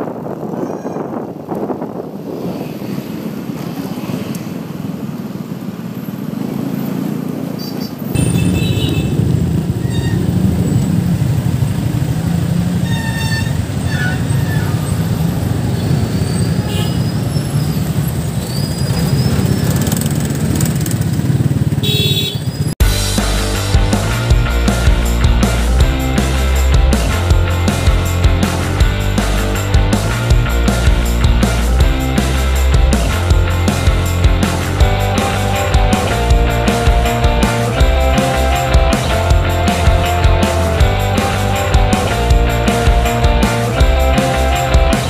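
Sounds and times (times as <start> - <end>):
wind rumble on microphone: 0.0 - 6.0, 8.1 - 21.8
traffic engines and road noise: 0.0 - 45.0.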